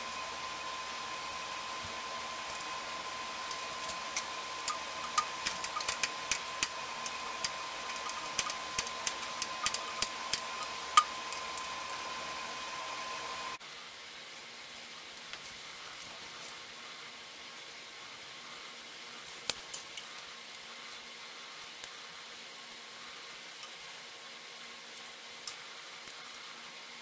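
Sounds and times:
steady background hum: 0.0 - 13.6.

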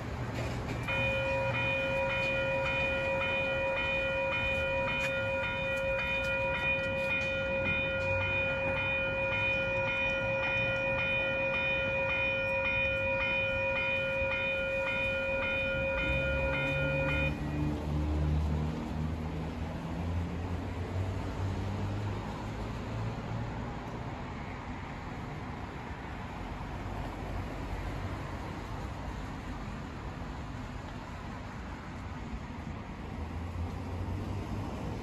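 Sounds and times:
railroad crossing bell ringing: 0.0 - 18.0.

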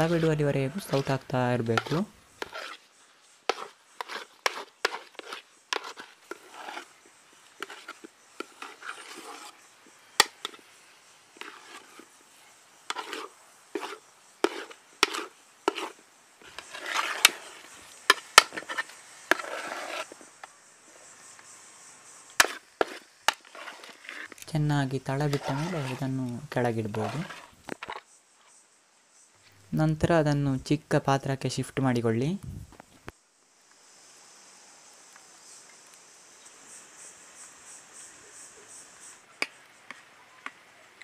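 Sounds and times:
ladle scraping a steel pot: 0.0 - 2.8, 3.5 - 6.9, 7.6 - 9.6, 10.2 - 10.6, 11.4 - 12.1, 12.9 - 20.2, 22.4 - 24.4, 25.1 - 28.0.

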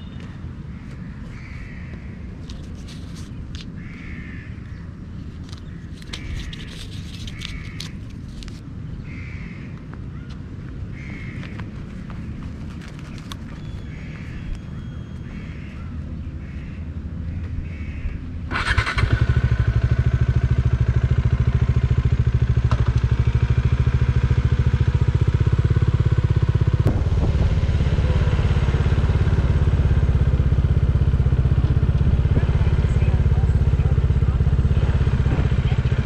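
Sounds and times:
motorcycle engine: 17.5 - 36.0.

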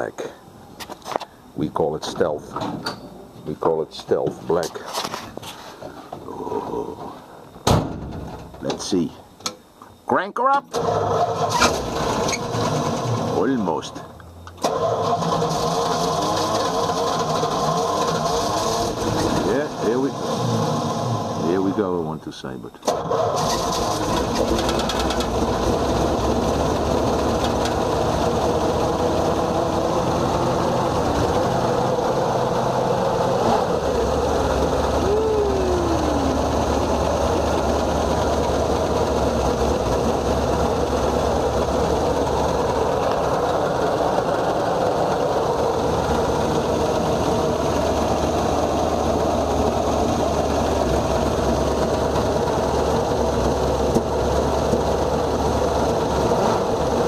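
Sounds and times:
short falling whine: 6.1 - 7.7, 25.2 - 54.0
engine running steadily: 10.7 - 57.0.

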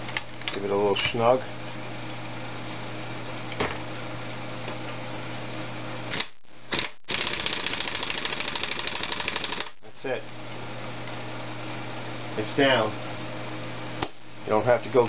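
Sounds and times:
air impact wrench hammering: 6.1 - 9.8.

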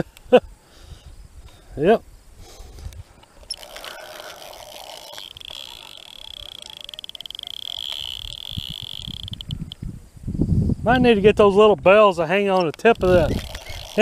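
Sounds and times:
high-pitched animal trill: 3.5 - 9.8, 13.0 - 14.0.

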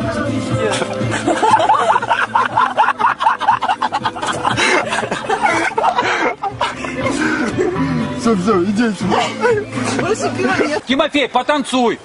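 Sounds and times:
people laughing: 0.6 - 8.1, 9.0 - 10.9.

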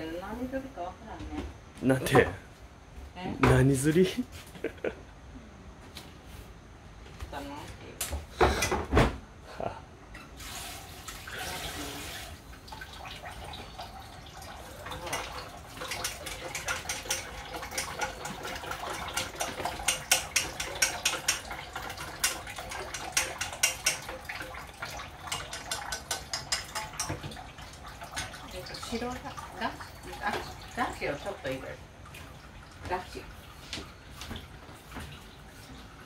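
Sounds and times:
splashing and light clatter: 10.2 - 36.0
tap water running into sink: 10.4 - 35.9.

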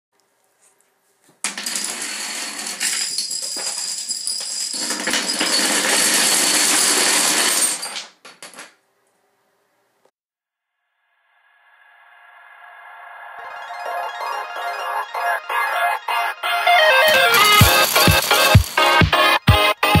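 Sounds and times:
dominoes clattering: 1.4 - 8.8, 17.1 - 19.2.

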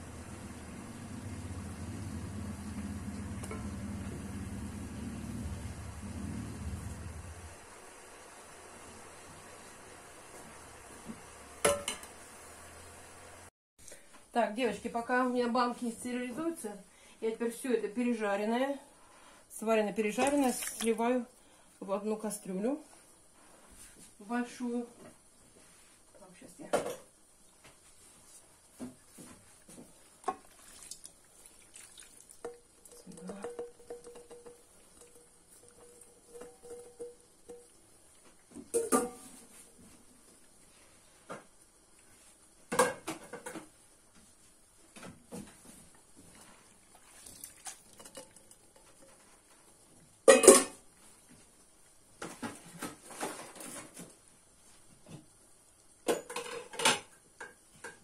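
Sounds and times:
pot knocking against pan: 11.6 - 12.1, 32.4 - 37.8.

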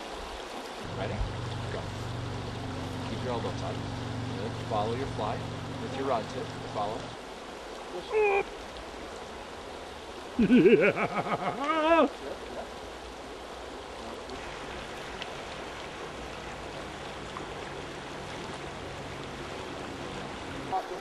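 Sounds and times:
river water running: 0.0 - 21.0
person whooping: 8.0 - 8.5, 11.5 - 12.2.

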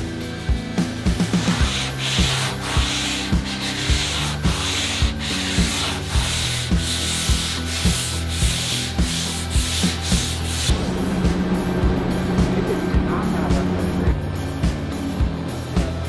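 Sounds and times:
background music with beat: 0.0 - 16.0
sanding block rubbing: 1.2 - 10.7.

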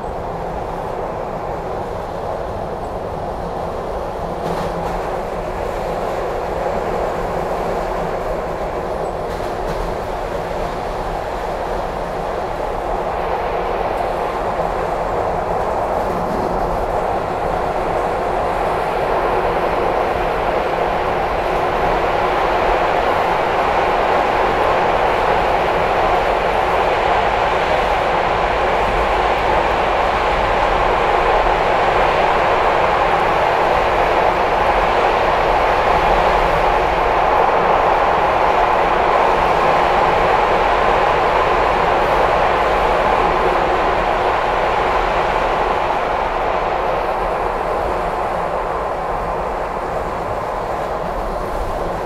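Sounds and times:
subway train rumbling in tunnel: 0.0 - 52.0.

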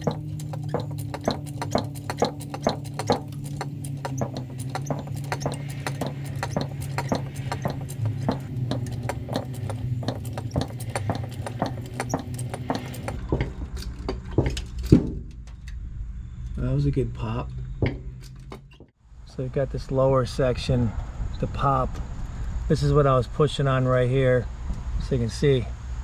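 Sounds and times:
quick ticking beat: 0.0 - 13.2.

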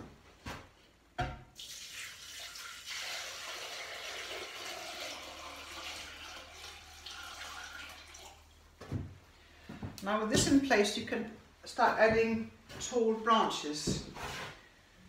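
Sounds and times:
water pouring into container: 1.6 - 8.6.

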